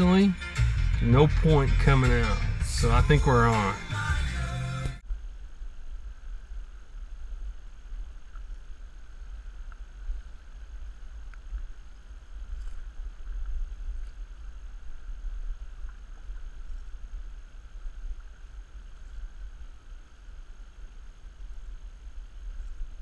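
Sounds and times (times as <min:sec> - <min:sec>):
faint ticks: 0:08.1 - 0:20.2.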